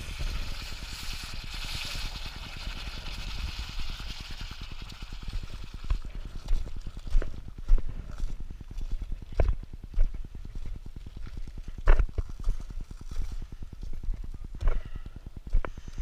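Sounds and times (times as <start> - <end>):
footsteps crunching on lava crust: 5.8 - 15.7.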